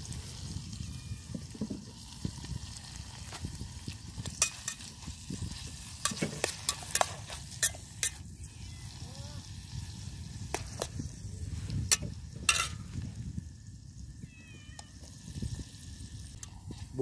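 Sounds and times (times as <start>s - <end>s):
vegetables sizzling in hot oil: 0.0s - 14.1s
spatula scraping metal pot: 4.4s - 8.2s.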